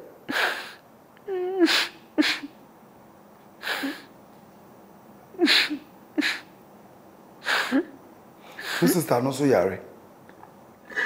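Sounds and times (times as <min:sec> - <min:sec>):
person sobbing: 0:00.3 - 0:02.5, 0:03.6 - 0:04.1, 0:05.4 - 0:06.4.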